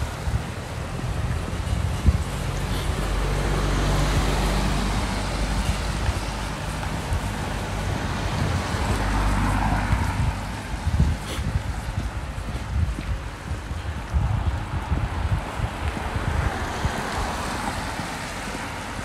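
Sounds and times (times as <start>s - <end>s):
vehicle engine running: 0.0s - 15.0s
road noise: 0.0s - 19.0s.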